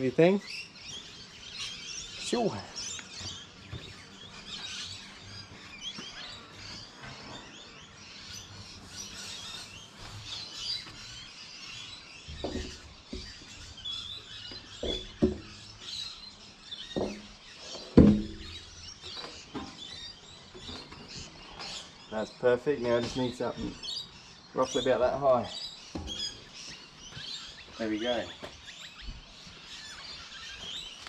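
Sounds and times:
small birds chirping: 0.0s - 31.0s
metal knocking against boat hull: 14.8s - 15.6s, 18.0s - 18.6s.

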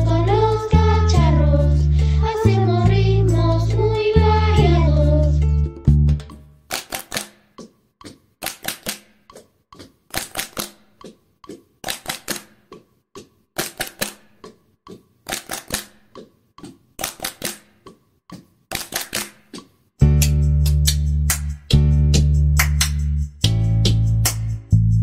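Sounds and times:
children clapping rhythmically: 6.2s - 11.2s, 11.8s - 12.7s, 13.6s - 14.5s, 15.3s - 16.3s, 17.0s - 23.2s, 23.9s - 24.6s.

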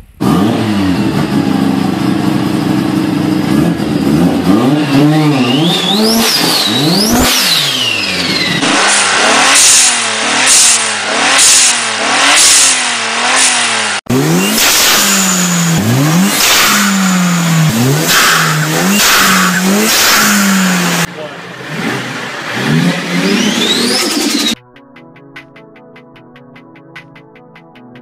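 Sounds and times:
turbocharged car engine revving: 0.0s - 24.6s
turbo whistle: 4.6s - 10.8s, 18.0s - 20.7s.

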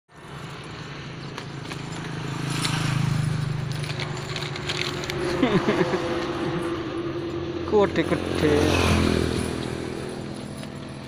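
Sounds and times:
small engine puttering: 0.2s - 6.7s.

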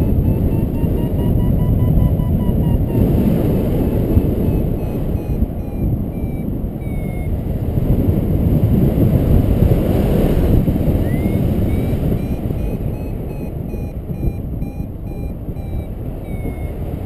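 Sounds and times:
high-pitched electronic beeps: 0.0s - 7.4s, 11.0s - 17.0s
wind over microphone: 0.0s - 17.0s.

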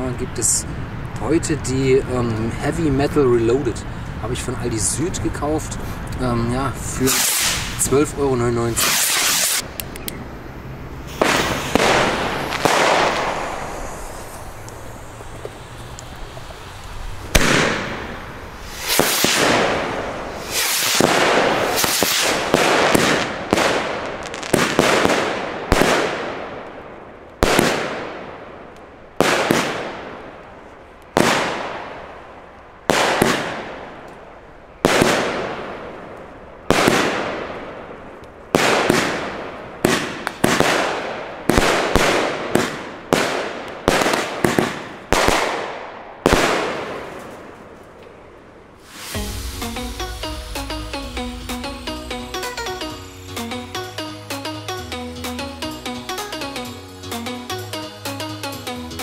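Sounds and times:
firework battery bangs: 7.0s - 8.0s, 8.6s - 9.7s, 11.0s - 26.6s, 31.2s - 32.0s, 32.9s - 34.0s.

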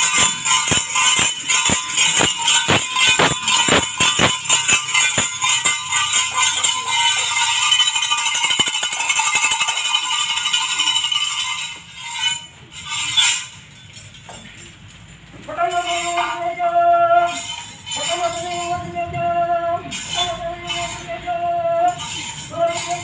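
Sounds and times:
brass bells jingling: 0.0s - 23.0s.

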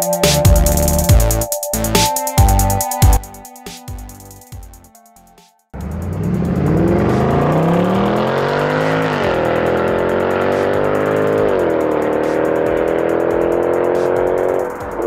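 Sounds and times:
car engine accelerating hard: 5.8s - 15.0s.

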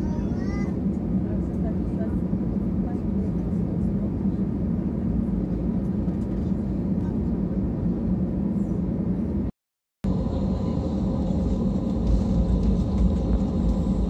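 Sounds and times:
cabin air running: 0.0s - 14.0s
jet engines idling: 10.0s - 14.0s.

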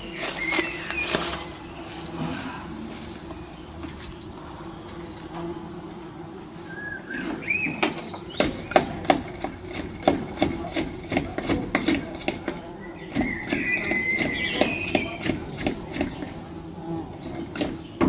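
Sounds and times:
bird chirping and singing: 0.0s - 5.5s, 6.6s - 9.3s, 12.5s - 16.4s
bumblebees buzzing: 0.0s - 18.0s.

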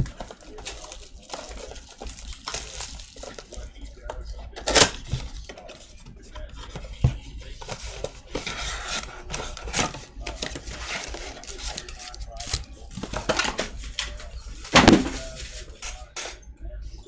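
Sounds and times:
cardboard boxes knocking together: 14.7s - 15.3s.

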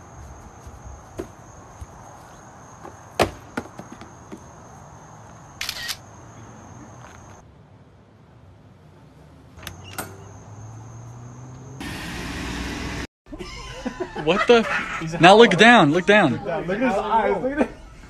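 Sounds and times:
high insect drone: 9.6s - 13.0s.

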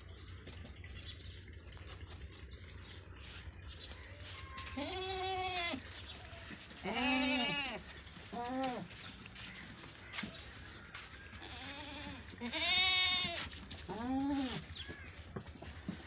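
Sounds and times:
goats bleating: 4.2s - 5.9s, 6.5s - 9.0s, 11.3s - 14.7s.

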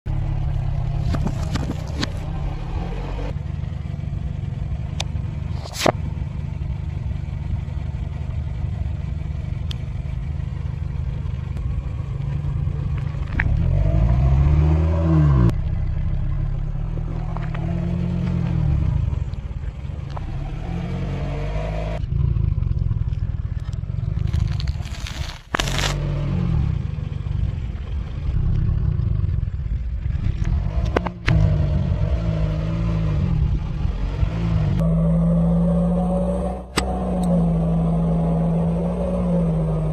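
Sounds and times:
car engine running: 0.0s - 39.9s
tyre crushing plastic and foil: 24.2s - 26.0s.

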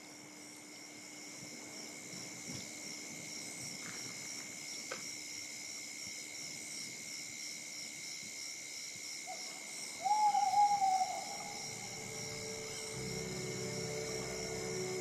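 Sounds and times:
insects chirping: 0.0s - 15.0s
loud hooting note: 10.7s - 15.0s.

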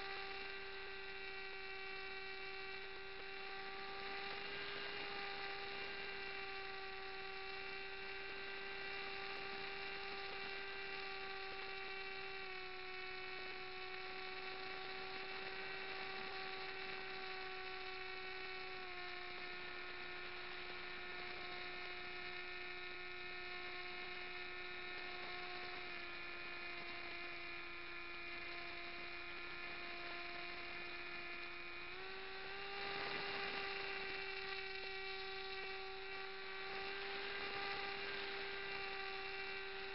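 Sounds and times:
propeller motor droning whine: 0.0s - 39.9s.

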